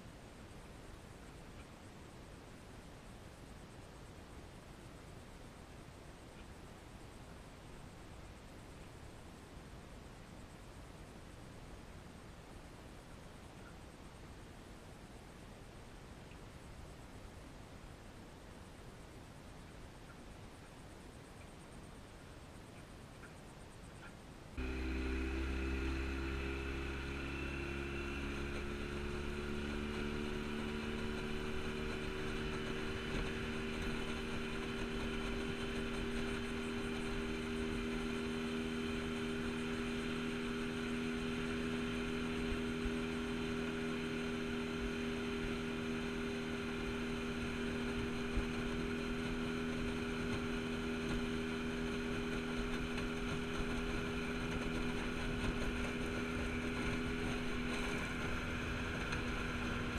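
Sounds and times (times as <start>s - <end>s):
outboard motor running: 24.6s - 59.9s.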